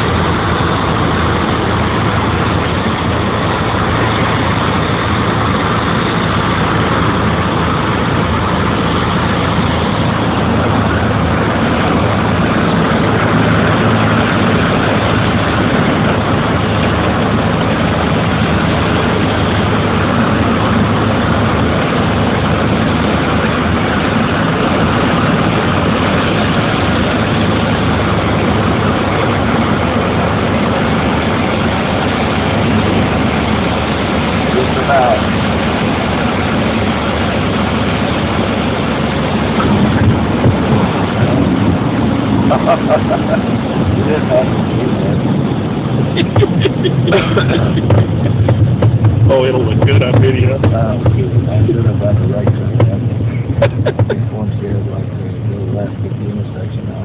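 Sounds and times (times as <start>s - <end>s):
propeller plane engine running: 0.0s - 57.0s
wind noise: 0.0s - 57.0s.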